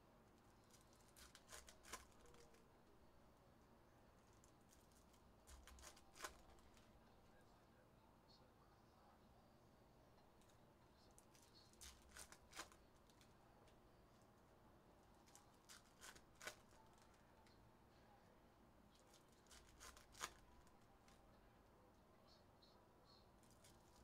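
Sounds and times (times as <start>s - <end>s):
foil wrappers crinkling: 0.6s - 2.6s, 4.2s - 7.0s, 11.2s - 13.3s, 15.2s - 17.2s, 19.0s - 21.2s.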